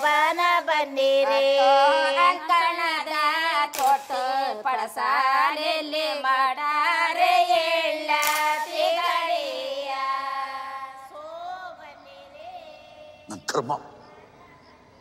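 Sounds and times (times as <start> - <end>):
high solo voice singing: 0.9 - 2.5.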